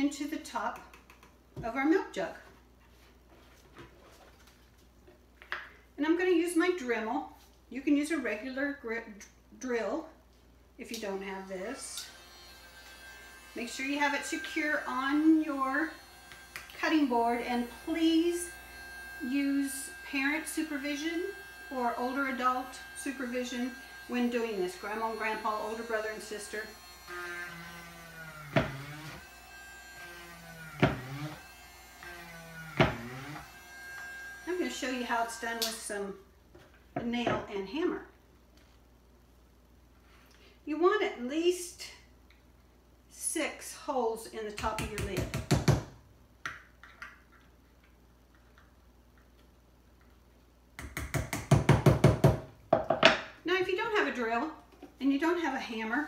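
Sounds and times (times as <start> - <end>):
rotary tool whining: 11.8 - 35.8.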